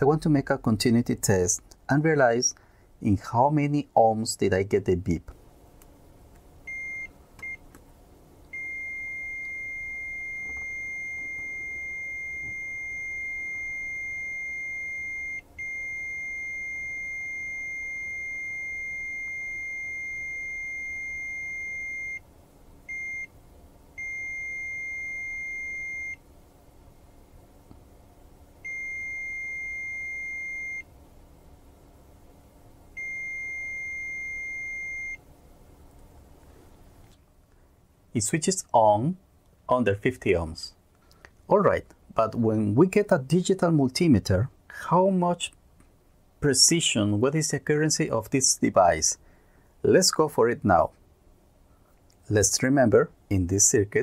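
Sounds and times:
multimeter continuity beeping: 6.7 - 7.6, 8.5 - 22.2, 24.0 - 26.2, 28.6 - 30.9, 33.0 - 35.2.

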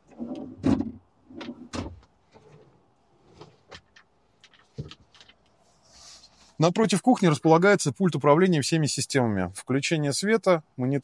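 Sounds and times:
drawers and cabinet doors opening and shutting: 0.0 - 5.4.

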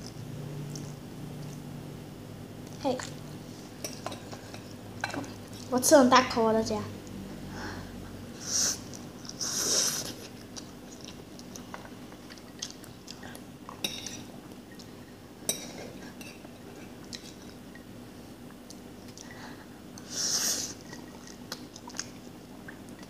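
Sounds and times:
chewing: 8.9 - 17.9, 20.7 - 23.0.

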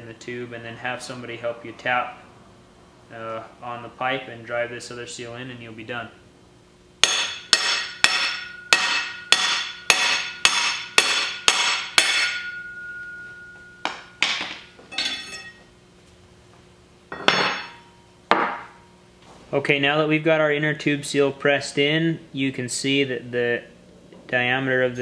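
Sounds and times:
hammer striking steel bar: 7.0 - 15.6, 17.1 - 18.8.

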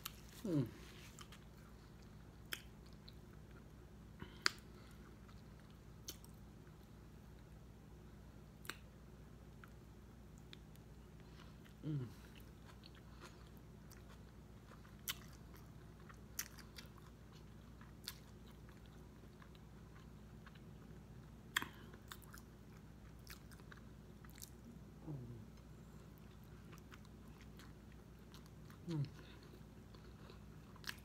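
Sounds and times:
person humming briefly: 0.4 - 0.9, 11.8 - 12.2
wet chewing and smacking: 10.4 - 24.8, 25.5 - 31.0.

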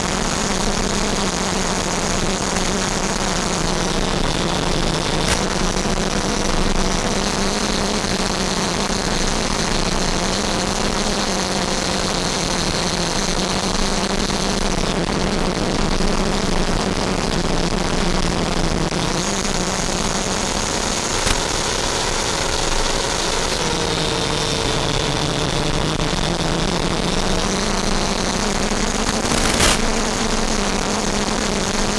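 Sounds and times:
electric fan whine: 18.6 - 31.9.

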